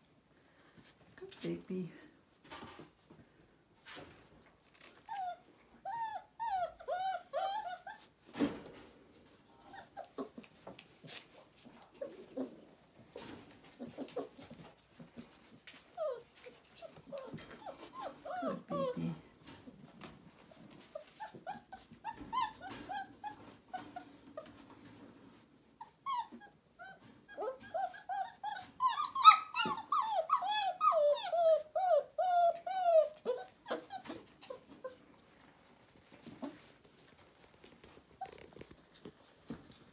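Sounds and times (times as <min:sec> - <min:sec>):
puppy whimpering: 0:04.9 - 0:08.2, 0:09.5 - 0:10.6, 0:11.5 - 0:19.3, 0:20.7 - 0:24.5, 0:25.8 - 0:35.1
faint rustles: 0:08.0 - 0:25.8, 0:32.6 - 0:39.9.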